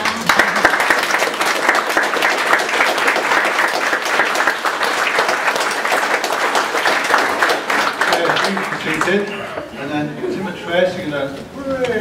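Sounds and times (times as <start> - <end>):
crowd clapping: 0.0 - 9.4.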